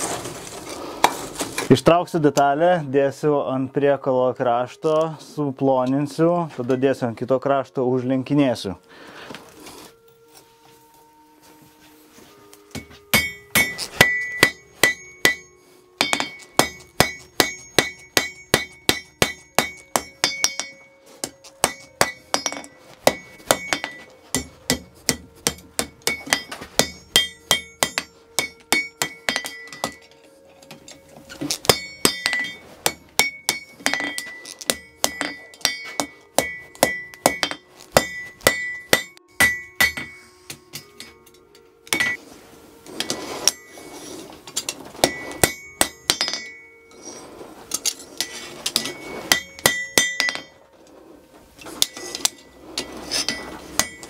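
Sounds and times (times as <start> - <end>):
hammer striking iron on an anvil: 12.7 - 42.2, 44.6 - 46.7, 47.8 - 50.6, 51.8 - 54.0.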